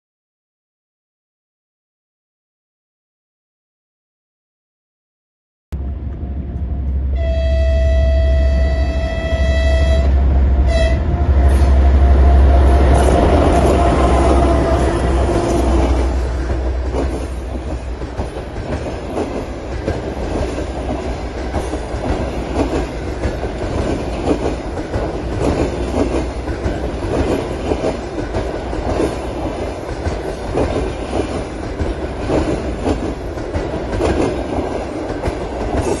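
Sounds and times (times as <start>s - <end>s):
train rumble: 5.8s - 36.0s
train wheels clattering over rails: 12.8s - 36.0s.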